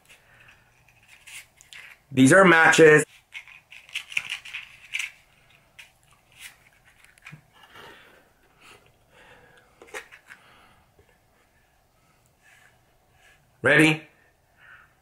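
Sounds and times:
matchbox sliding and rustling: 0.0s - 2.1s, 3.0s - 7.6s.

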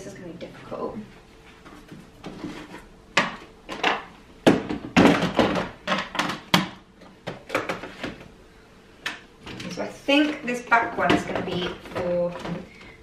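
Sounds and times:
plastic bottles clunking and rattling: 1.9s - 8.3s, 9.4s - 13.0s.

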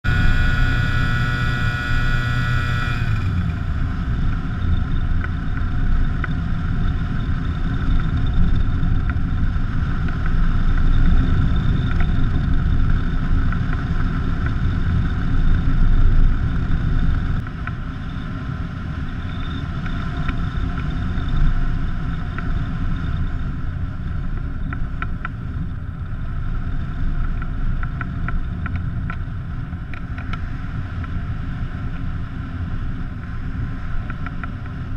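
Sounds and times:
small engine running: 0.0s - 23.8s
wind rushing over microphone: 0.0s - 34.9s.

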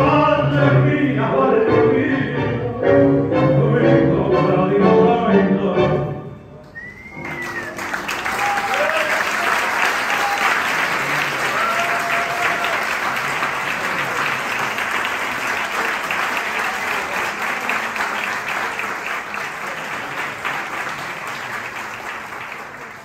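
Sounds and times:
audience applauding: 6.6s - 23.0s.

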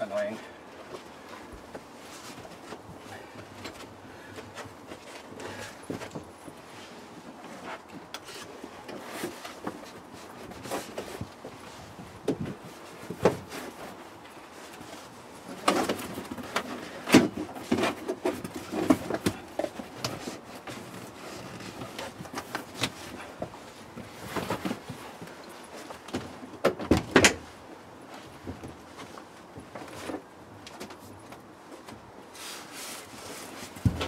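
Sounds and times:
carpet rustling and scuffing: 0.1s - 34.0s.

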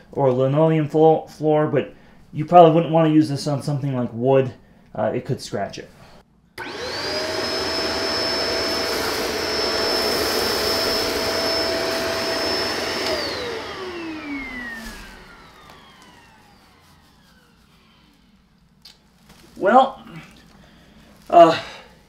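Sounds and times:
vacuum motor winding down: 6.6s - 18.6s
vacuum cleaner whine: 6.6s - 18.7s.

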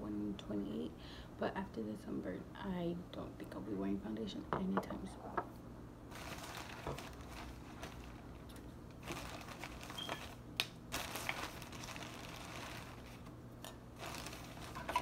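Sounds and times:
shopping bag rustling: 6.1s - 13.3s, 14.0s - 15.0s.

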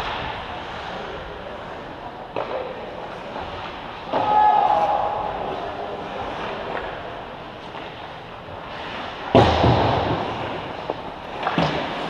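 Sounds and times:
hockey sticks and puck knocking: 2.3s - 4.3s, 9.3s - 12.0s.

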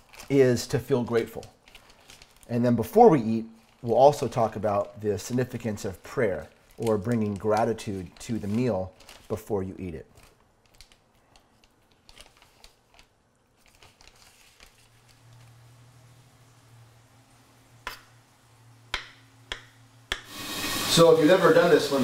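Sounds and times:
knife tapping on wooden board: 18.9s - 20.3s.

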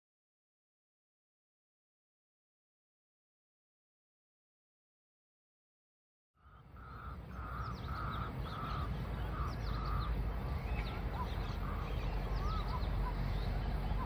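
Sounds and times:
crow cawing: 6.4s - 10.2s
small birds chirping: 6.4s - 14.0s
steady low rumble: 6.6s - 14.0s.

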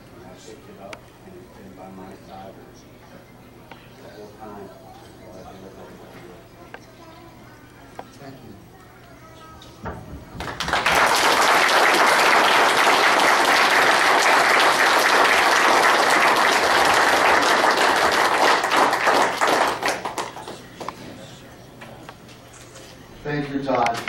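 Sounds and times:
audience applauding: 10.4s - 20.9s.

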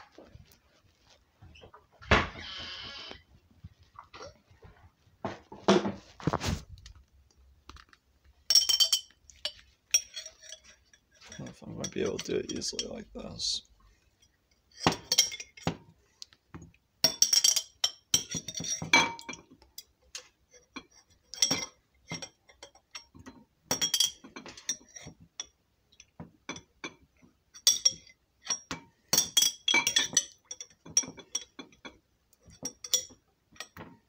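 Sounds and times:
spoon clinking in glass jar: 8.5s - 13.0s, 14.7s - 15.7s, 17.0s - 19.9s, 20.7s - 26.7s, 27.6s - 33.9s.

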